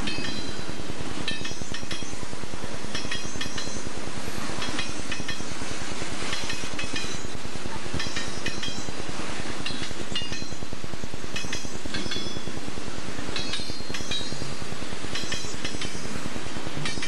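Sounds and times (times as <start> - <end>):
train wheels clicking over rail joints: 0.0 - 12.6, 13.2 - 17.0
freight train rumble: 0.0 - 17.0.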